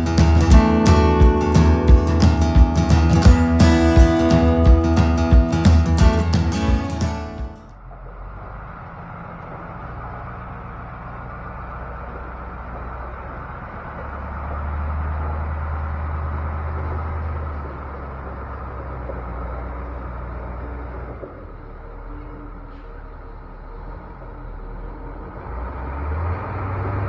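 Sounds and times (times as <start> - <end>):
truck engine running: 0.0 - 27.0.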